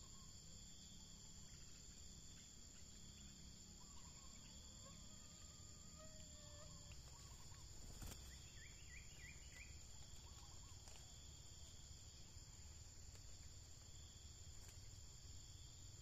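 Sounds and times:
faint bird chirps: 0.0s - 11.4s
insect trilling: 0.0s - 16.0s.

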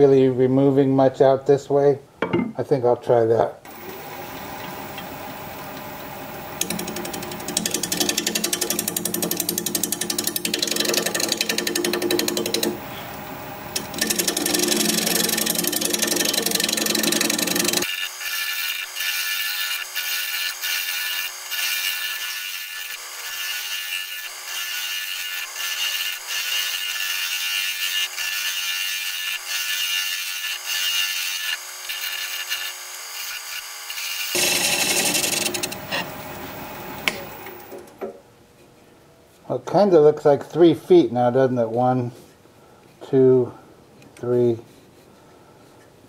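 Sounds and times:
wood lathe running: 3.7s - 37.9s
gouge scraping wood on lathe: 6.6s - 13.0s, 13.7s - 32.9s, 34.2s - 36.2s.

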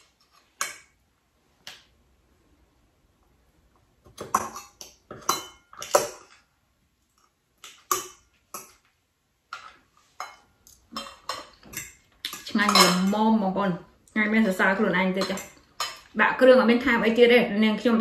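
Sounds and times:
cutlery clinking on ceramic bowls: 4.1s - 6.5s, 7.6s - 8.9s, 9.5s - 13.3s, 15.0s - 16.2s.

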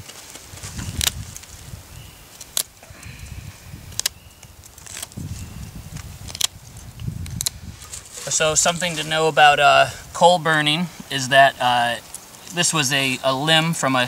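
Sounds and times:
knife snapping through wood: 2.4s - 2.8s, 3.9s - 5.2s, 6.3s - 6.6s.

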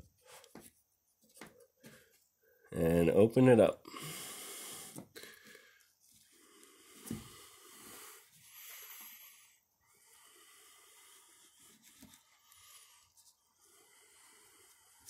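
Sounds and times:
faint breathing: 3.8s - 15.0s.

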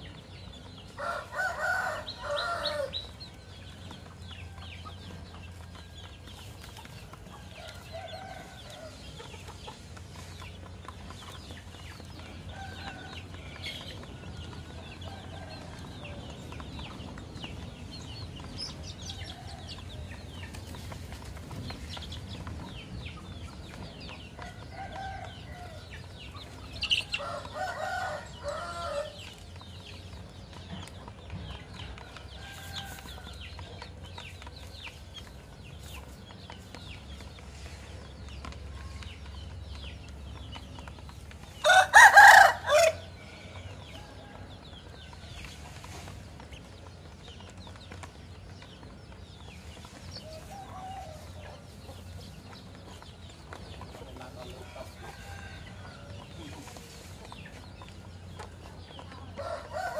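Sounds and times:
rooster crowing: 1.0s - 3.0s, 27.2s - 29.2s, 41.6s - 43.1s.

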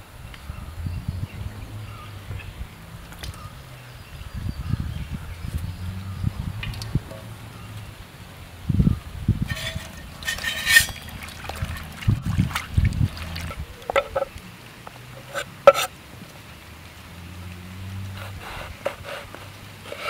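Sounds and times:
water sloshing in metal basin: 9.5s - 14.4s, 15.1s - 15.9s.

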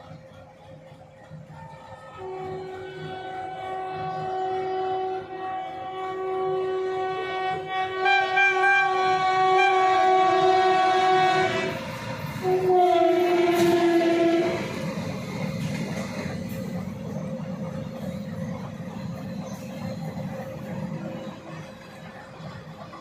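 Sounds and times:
train wheels rumbling on track: 0.0s - 23.0s
locomotive horn blasts: 2.2s - 14.8s.

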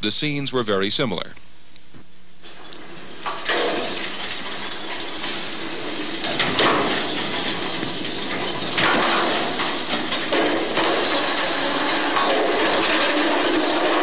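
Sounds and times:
loud bangs: 2.8s - 14.0s
chairlift rushing clatter: 2.9s - 14.0s.

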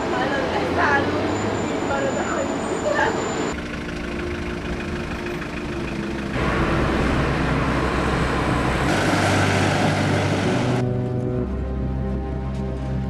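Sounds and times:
street traffic noise: 0.0s - 13.0s
car engine hum: 2.9s - 13.0s.

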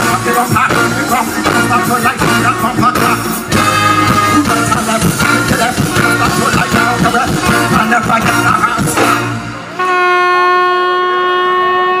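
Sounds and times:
live band music: 0.0s - 12.0s.

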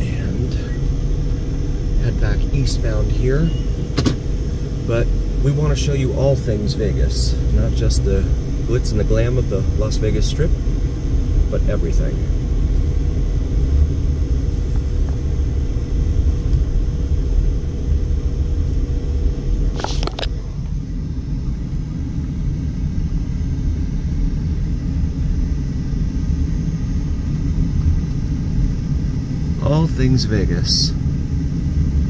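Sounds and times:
car engine and tyres rumbling: 0.0s - 32.0s
faint steady hum: 0.0s - 32.0s.

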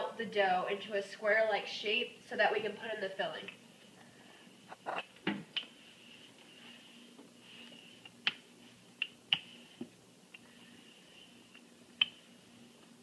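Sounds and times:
faint high hum: 0.0s - 13.0s.

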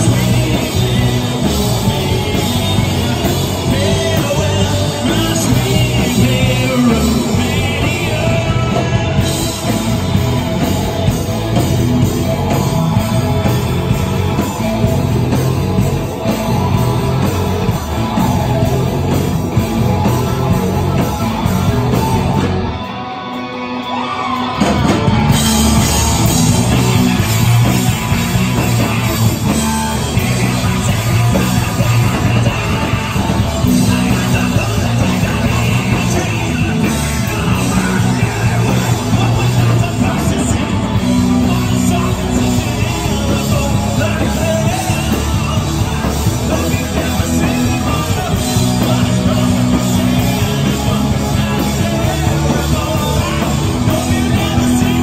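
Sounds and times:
live rock band playing: 0.0s - 55.0s
rising pitch: 6.6s - 42.8s.

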